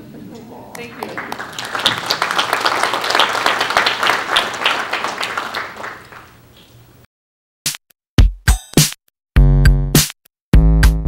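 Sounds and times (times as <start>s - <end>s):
audience applauding: 0.7s - 6.4s.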